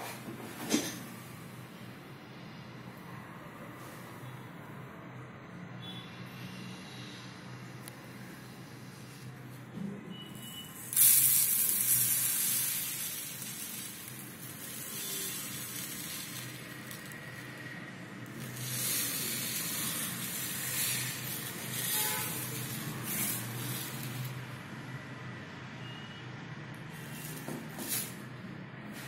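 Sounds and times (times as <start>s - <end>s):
seeds pouring onto a plate: 10.8s - 24.5s.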